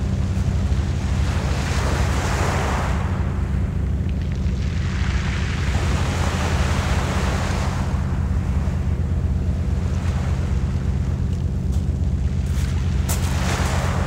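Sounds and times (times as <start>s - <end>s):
steady low rumble: 0.0s - 14.0s
waves on pebble beach: 4.2s - 8.1s, 12.2s - 14.0s.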